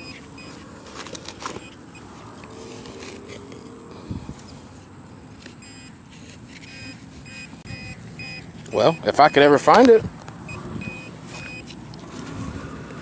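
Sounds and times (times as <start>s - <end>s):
rustling and scraping of soil: 0.0s - 8.8s, 11.2s - 13.0s
faint short beeps: 6.6s - 9.4s.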